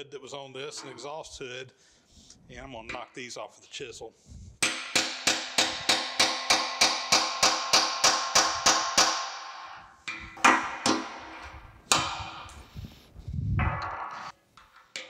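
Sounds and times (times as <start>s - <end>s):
hammer striking chisel on metal: 4.6s - 12.6s.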